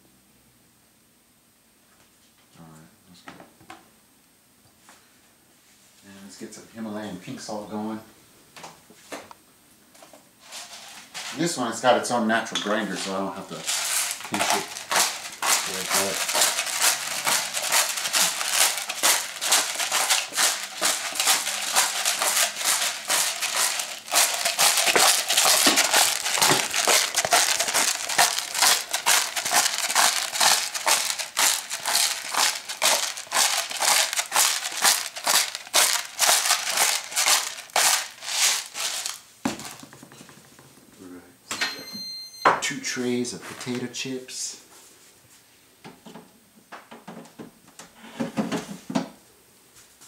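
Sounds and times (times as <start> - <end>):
salt grinder crushing crystals: 12.7 - 40.0.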